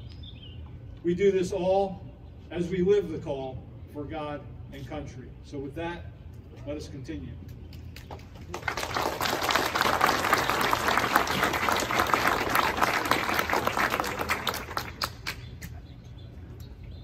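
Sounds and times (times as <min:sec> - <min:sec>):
audience applauding: 0:08.5 - 0:15.4.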